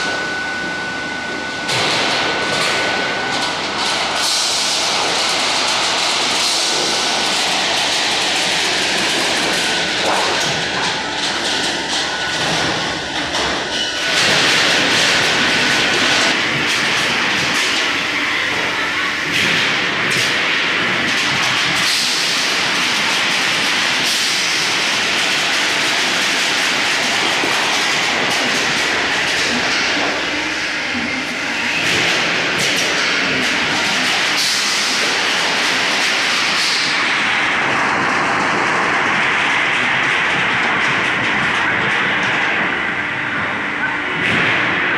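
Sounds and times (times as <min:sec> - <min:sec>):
thin steady whine: 0:00.0 - 0:21.1
roll-forming machine clattering: 0:01.6 - 0:44.9.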